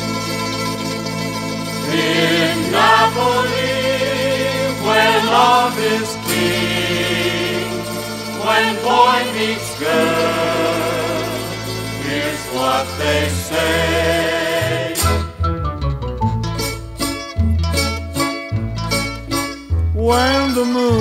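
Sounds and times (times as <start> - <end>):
slow orchestral song with singing: 1.7 - 15.4.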